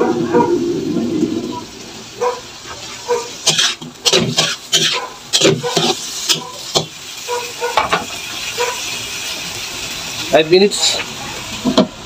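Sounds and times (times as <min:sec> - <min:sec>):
pan sizzling: 0:00.0 - 0:12.0
spatula scraping a wok: 0:02.6 - 0:08.5.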